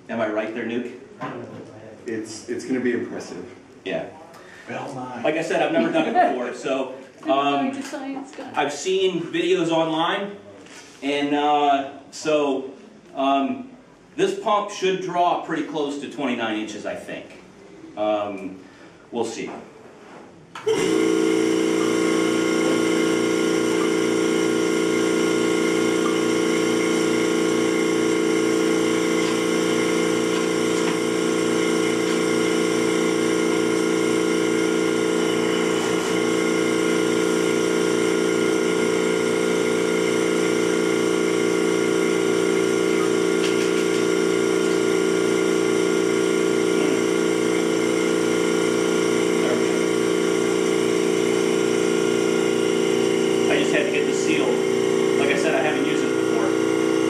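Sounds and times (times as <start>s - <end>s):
vacuum pump humming and pulsing: 1.2s - 10.0s, 20.6s - 57.0s.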